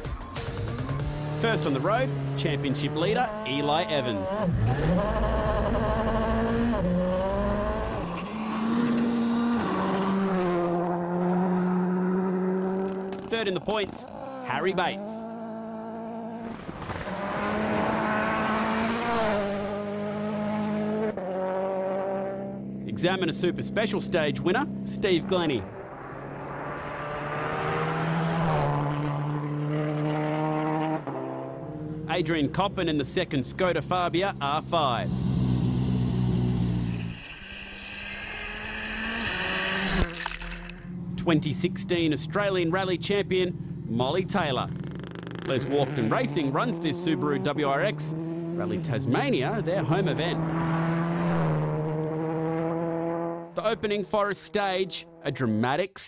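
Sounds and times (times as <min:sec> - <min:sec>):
rally car engine at high revs: 0:00.6 - 0:54.2
tyres on gravel: 0:39.9 - 0:40.8.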